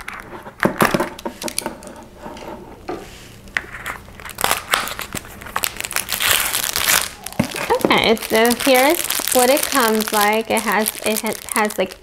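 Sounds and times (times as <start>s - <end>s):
box packaging being opened: 3.7s - 12.0s.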